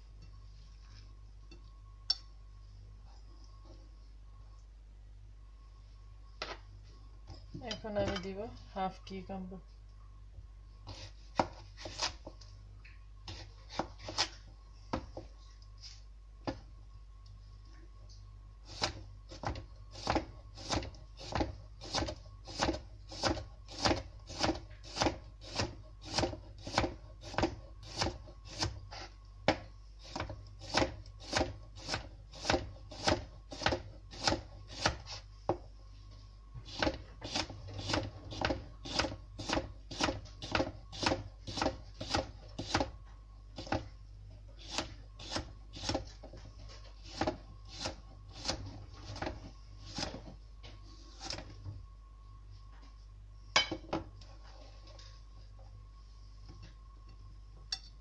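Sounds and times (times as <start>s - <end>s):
knife chopping on plastic board: 29.4s - 35.6s, 36.7s - 42.9s.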